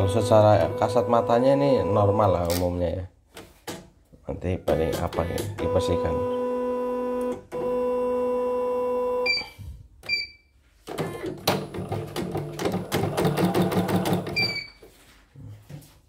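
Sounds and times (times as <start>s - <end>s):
machine beeps: 0.0s - 2.4s, 5.3s - 7.9s, 9.0s - 10.5s, 14.4s - 14.8s.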